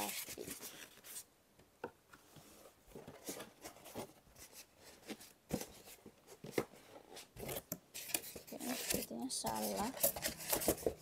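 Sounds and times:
styrofoam and cardboard rubbing: 0:00.0 - 0:01.2, 0:07.2 - 0:11.0.

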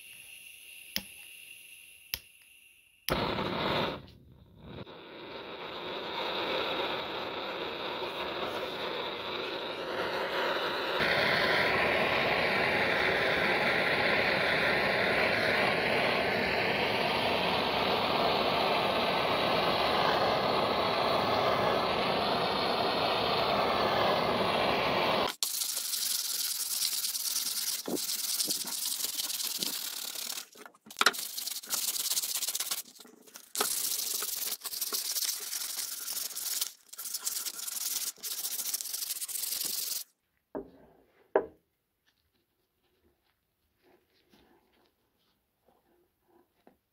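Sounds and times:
gas torch hissing: 0:00.0 - 0:40.1
brush scrubbing wood: 0:25.4 - 0:40.0.

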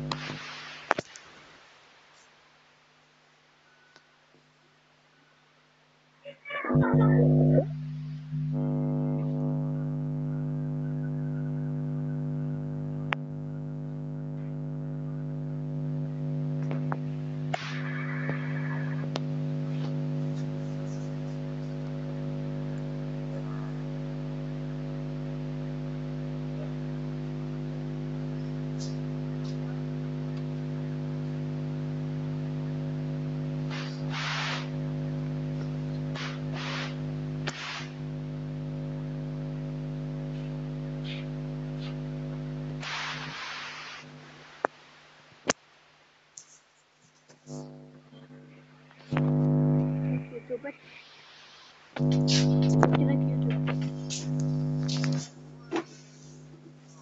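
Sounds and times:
hissy bursts: 0:00.0 - 0:02.3, 0:16.6 - 0:23.0, 0:31.0 - 0:39.6, 0:40.3 - 0:44.8, 0:50.8 - 0:52.7, 0:53.8 - 0:57.0
drone of held tones: 0:06.7 - 0:43.3, 0:49.1 - 0:50.4.

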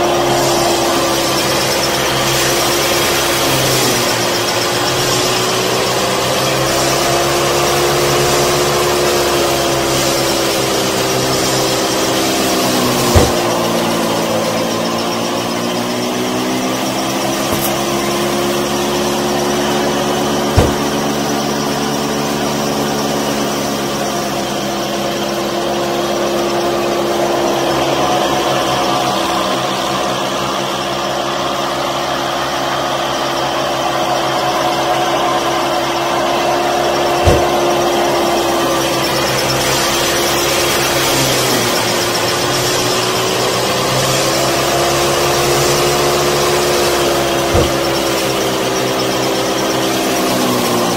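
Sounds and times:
small electric motor whine: 0:00.0 - 0:50.9
brief knocks: 0:20.5 - 0:21.1, 0:37.2 - 0:37.8, 0:47.5 - 0:48.1.

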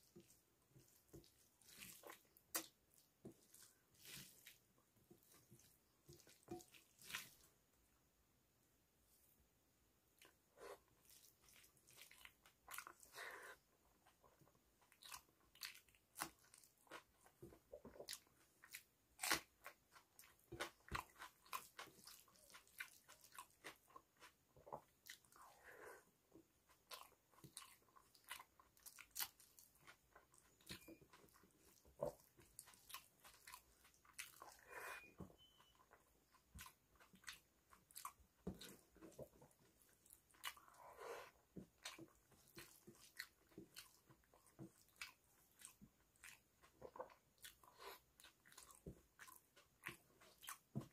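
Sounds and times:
wet mouth chewing sounds: 0:14.0 - 0:25.6, 0:26.7 - 0:50.9.

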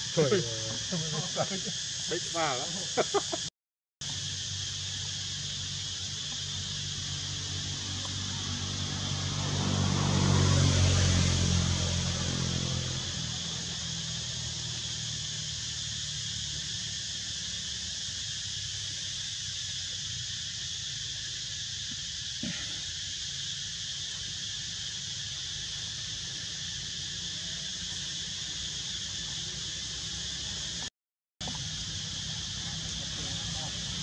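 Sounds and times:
insect chorus buzzing: 0:00.0 - 0:34.0.

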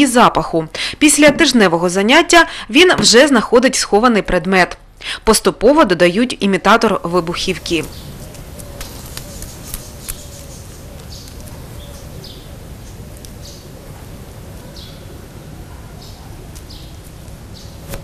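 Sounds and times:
small bird chirping: 0:07.2 - 0:18.0.

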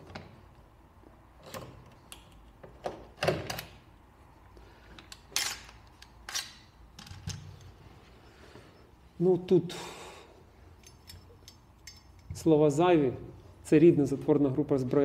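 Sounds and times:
rifle parts clicking and knocking: 0:10.8 - 0:12.4.

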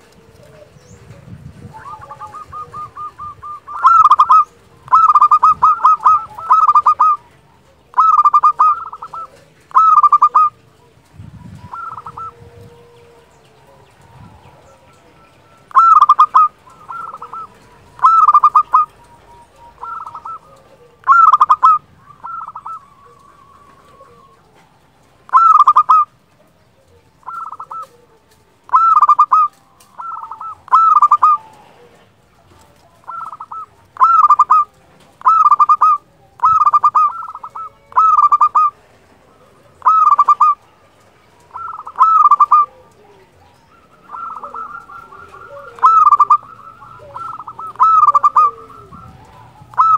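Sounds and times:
dove cooing: 0:00.0 - 0:49.9.

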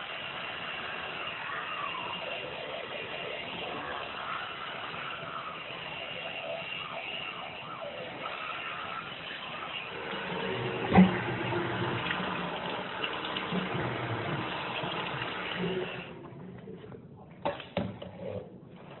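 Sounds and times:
tap water running into sink: 0:08.2 - 0:16.2.

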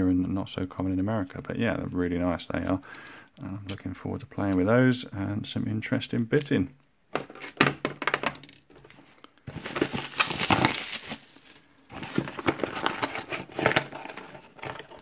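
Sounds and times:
cardboard and paper rustling: 0:08.9 - 0:15.0.

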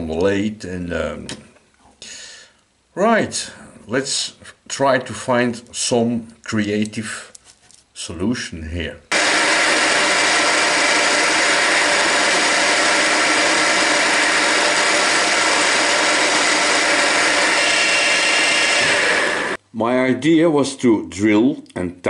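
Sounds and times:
drill bit cutting metal hiss: 0:09.1 - 0:19.6
drill motor whine: 0:09.1 - 0:19.6.

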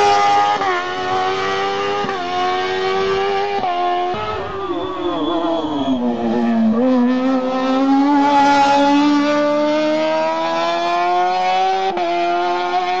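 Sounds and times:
race car engine accelerating: 0:00.0 - 0:13.0.

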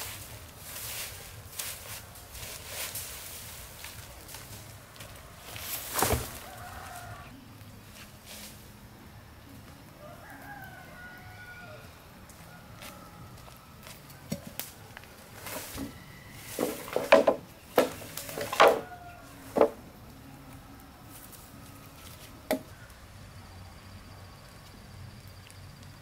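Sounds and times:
bamboo poles knocking: 0:15.4 - 0:19.9, 0:22.5 - 0:22.7
machete knocking bamboo: 0:16.6 - 0:18.9, 0:22.5 - 0:22.7.

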